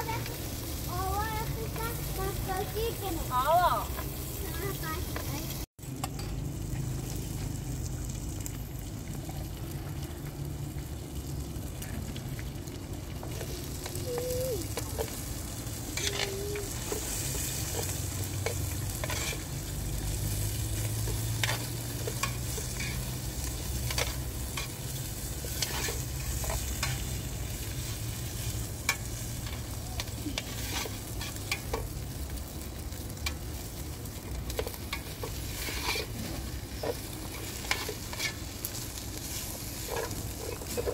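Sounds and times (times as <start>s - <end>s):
food frying in a pot: 0.0s - 40.9s
spoon scraping a pot: 17.7s - 19.5s, 35.3s - 38.4s.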